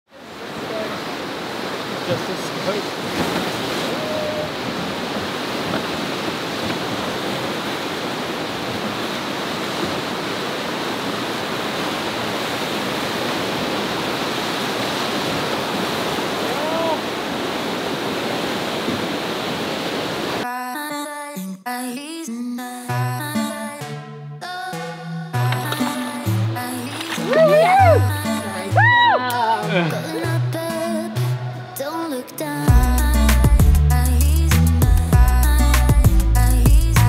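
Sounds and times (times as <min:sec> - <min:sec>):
river water rushing: 0:00.1 - 0:20.4, 0:25.5 - 0:32.7.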